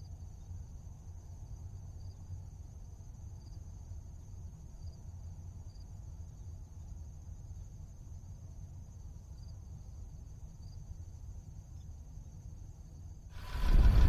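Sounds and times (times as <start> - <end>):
low rumble: 13.3 - 14.0.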